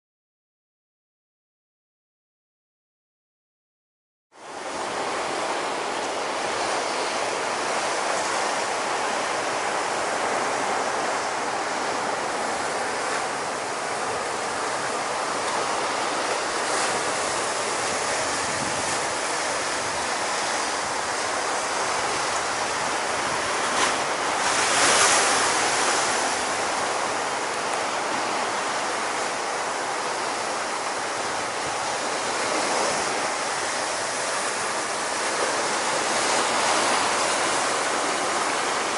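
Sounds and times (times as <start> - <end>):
waves breaking: 4.4 - 38.9
wind on microphone: 16.6 - 27.1.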